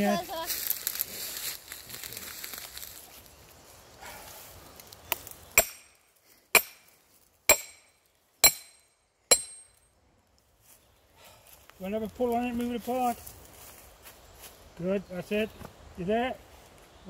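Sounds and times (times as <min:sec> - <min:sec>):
sledgehammer clanking on steel wedge: 0:05.6 - 0:06.0, 0:06.6 - 0:06.9, 0:07.5 - 0:09.8.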